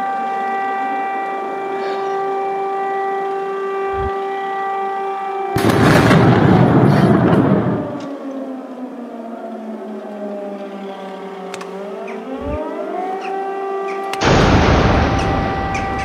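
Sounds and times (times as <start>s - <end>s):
air raid siren: 0.0s - 16.0s
loud explosion: 5.6s - 7.9s, 14.2s - 16.0s.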